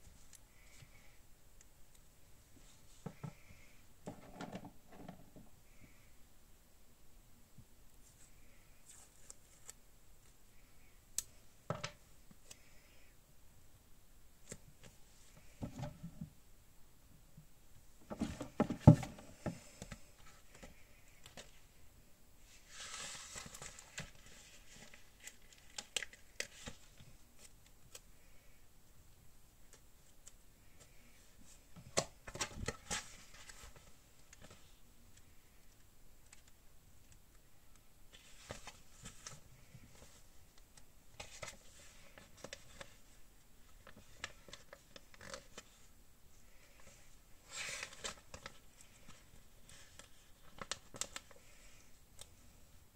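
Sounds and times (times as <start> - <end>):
paper rustling and crinkling: 22.5 - 28.0, 30.0 - 35.2, 38.1 - 45.9, 46.5 - 52.3.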